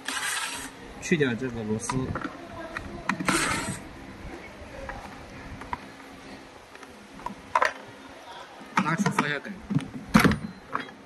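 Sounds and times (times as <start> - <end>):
screwdriver turning a screw: 0.0 - 0.7.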